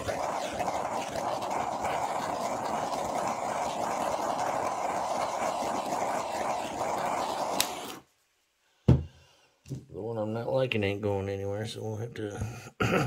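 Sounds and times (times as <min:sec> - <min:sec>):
torch flame hissing: 0:00.0 - 0:08.1.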